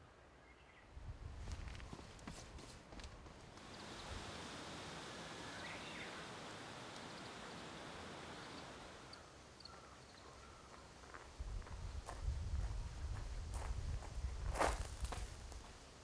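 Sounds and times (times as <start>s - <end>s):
wind through tree leaves: 0.0s - 16.0s
faint bird chirp: 5.4s - 11.2s.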